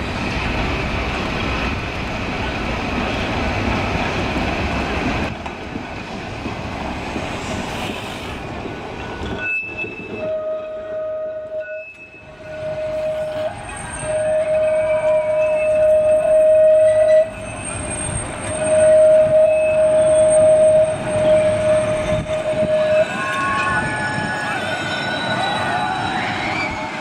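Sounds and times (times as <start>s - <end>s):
tram wheels rumbling on rail: 0.0s - 27.0s
high squeal: 9.2s - 10.4s, 17.1s - 27.0s.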